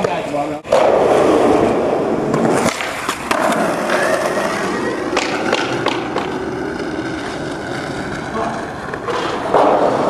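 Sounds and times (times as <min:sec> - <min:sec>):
skateboard wheels rolling on concrete: 0:00.0 - 0:10.0
skateboard clacks and knocks: 0:02.3 - 0:10.0.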